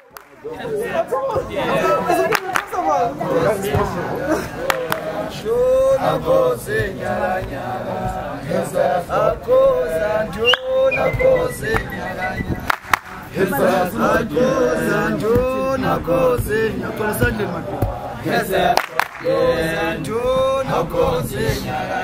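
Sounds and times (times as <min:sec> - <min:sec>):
hand claps: 0:00.0 - 0:00.5, 0:02.3 - 0:02.8, 0:04.6 - 0:05.2, 0:10.4 - 0:13.3, 0:18.7 - 0:19.5
men chanting and singing: 0:00.4 - 0:22.0.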